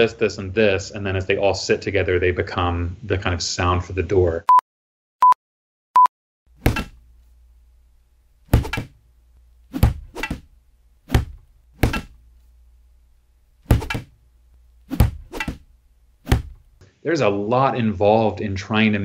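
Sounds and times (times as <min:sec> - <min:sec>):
shovel striking punching bag: 0:06.6 - 0:07.0, 0:08.5 - 0:09.0, 0:09.7 - 0:10.5, 0:11.1 - 0:12.2, 0:13.6 - 0:14.2, 0:14.9 - 0:16.7
faint low hum: 0:06.6 - 0:19.0.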